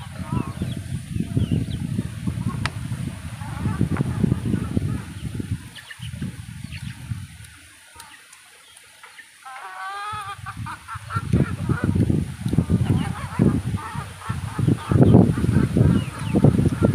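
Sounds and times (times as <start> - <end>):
bird honking call: 12.6 - 16.9.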